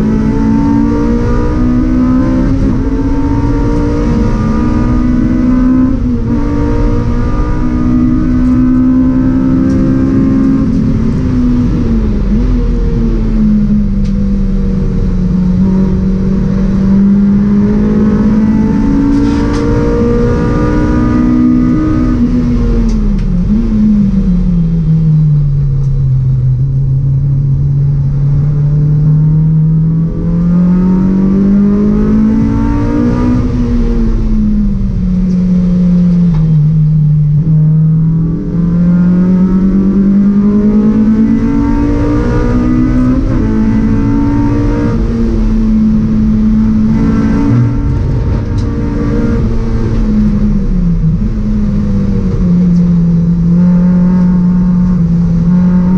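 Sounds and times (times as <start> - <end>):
race car engine at high revs: 0.0 - 55.9.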